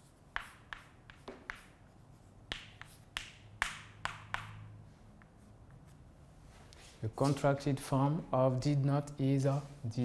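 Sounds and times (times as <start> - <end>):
chalk tapping on blackboard: 0.0 - 5.9.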